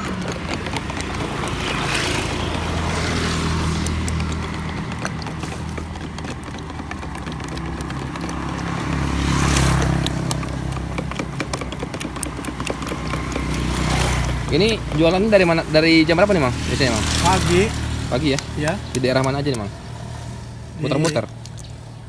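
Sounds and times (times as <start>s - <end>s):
skewer clicking in plastic cup: 0.0s - 15.6s, 18.2s - 19.7s
engine hum: 0.0s - 22.0s
vehicles passing: 0.0s - 22.0s.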